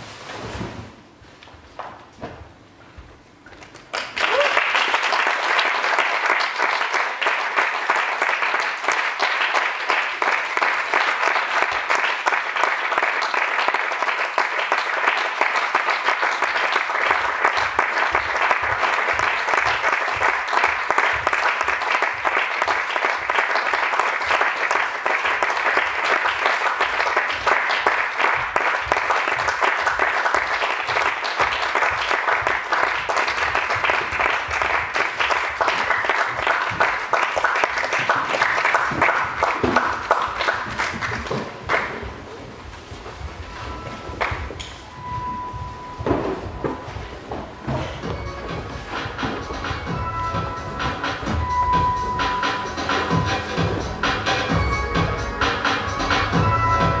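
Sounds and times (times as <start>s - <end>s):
audience applauding: 3.6s - 42.6s, 43.7s - 45.0s.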